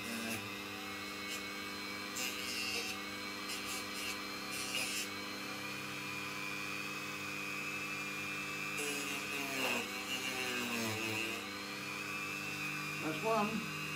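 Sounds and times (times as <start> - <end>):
rotary tool whining: 0.0 - 13.9.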